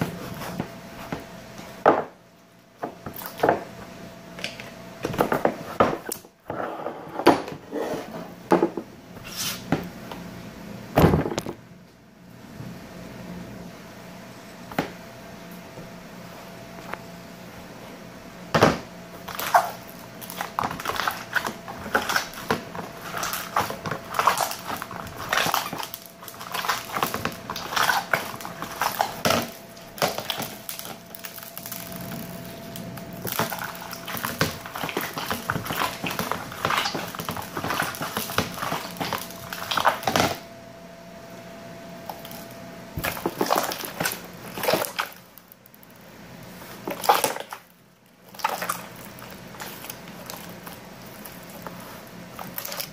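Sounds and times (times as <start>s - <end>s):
faint steady hum: 0.0s - 52.9s
slime squelching and crackling: 19.1s - 40.4s, 42.0s - 52.9s.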